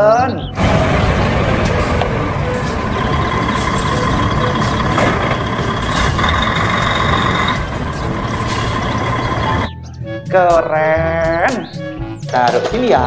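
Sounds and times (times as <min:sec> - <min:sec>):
high whine: 0:00.6 - 0:09.7
truck engine rumbling: 0:00.6 - 0:09.7.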